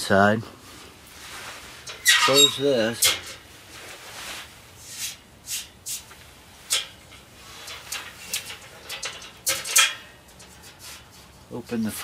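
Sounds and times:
metal stove door scraping: 1.8s - 3.4s.

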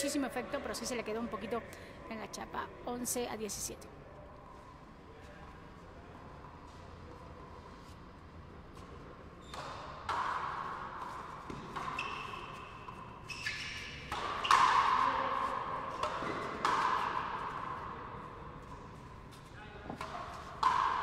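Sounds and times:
racket striking ball: 9.5s - 17.9s, 19.9s - 21.0s
rubber ball hitting wall echoing: 13.6s - 18.0s, 19.9s - 21.0s.

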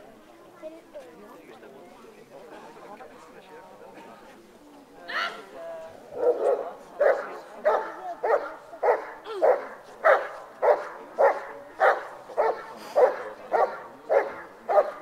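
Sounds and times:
dog barking: 6.2s - 15.0s.

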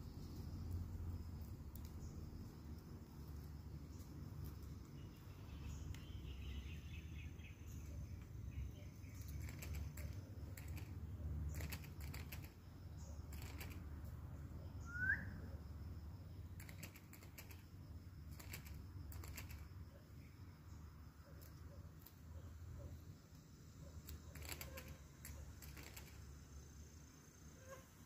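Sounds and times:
faint clicks and rustles: 9.0s - 12.6s, 13.2s - 14.0s, 16.6s - 19.8s, 24.0s - 26.4s
rising bird chirp: 14.6s - 15.6s.

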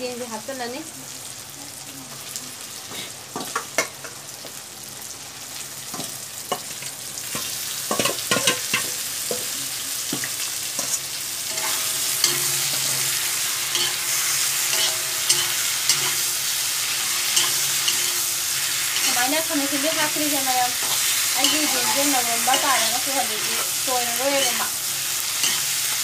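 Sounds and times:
chicken sizzling in a pan: 0.0s - 26.0s
metal spatula scraping a pan: 10.8s - 26.0s.

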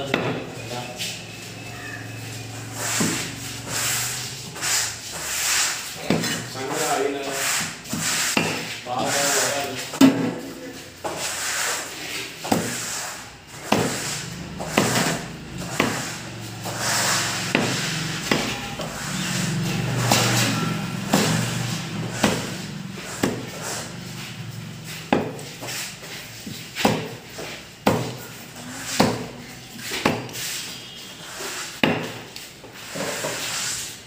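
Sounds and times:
knife chopping on wooden block: 13.6s - 16.1s, 17.5s - 18.5s, 22.2s - 22.5s, 23.1s - 23.5s, 25.1s - 25.5s, 26.8s - 27.2s.

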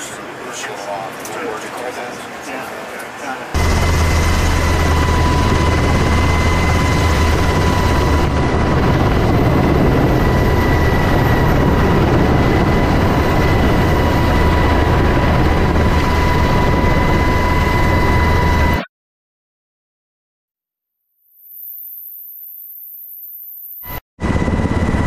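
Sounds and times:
helicopter cabin din: 0.0s - 18.8s
high-pitched whine: 3.3s - 18.9s.

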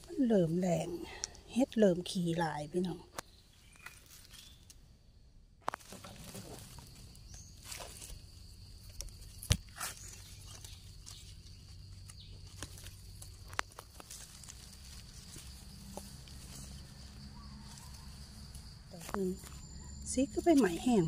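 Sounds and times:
fingers scraping in dry soil: 5.6s - 21.0s.

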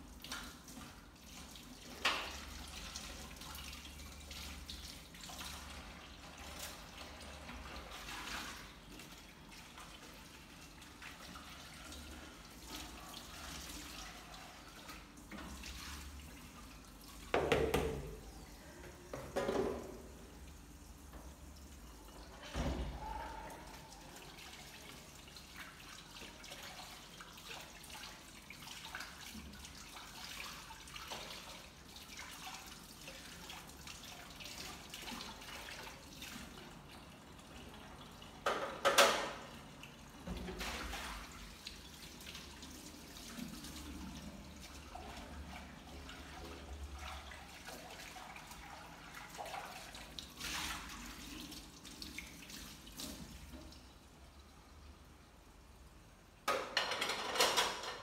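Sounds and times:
tap water running and splashing: 0.0s - 23.0s, 23.8s - 55.2s
loud dish clatter: 56.5s - 58.0s.

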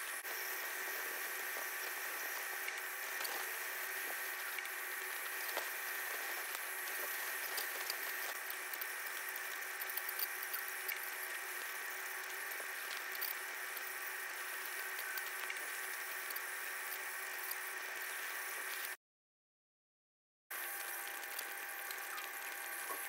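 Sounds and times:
scaler tip ticking on teeth: 1.6s - 17.6s.

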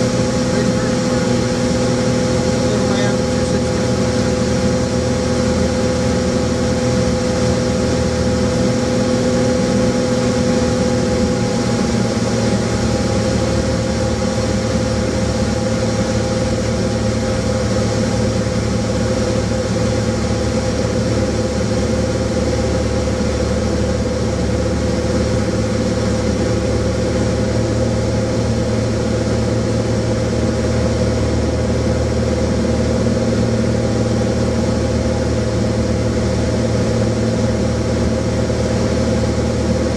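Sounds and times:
propeller aircraft engine droning: 0.0s - 39.9s.

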